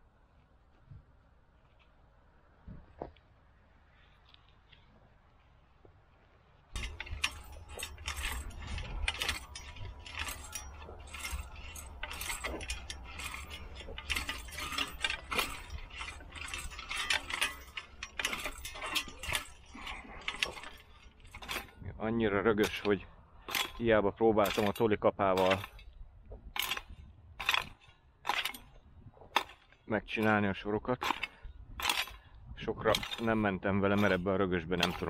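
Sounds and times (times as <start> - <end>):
push hoe scraping through soil: 6.7 - 35.0.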